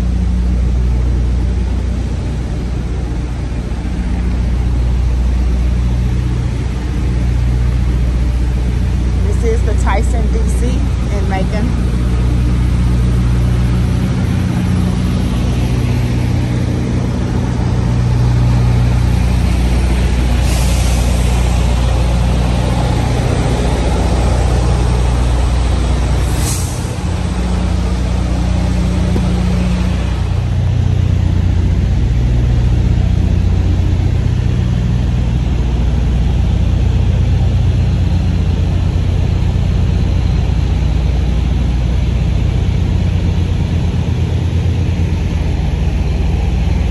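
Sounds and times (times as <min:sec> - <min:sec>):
truck diesel engine running: 0:00.0 - 0:46.9
air brake hisses: 0:20.4 - 0:21.3, 0:26.2 - 0:27.0.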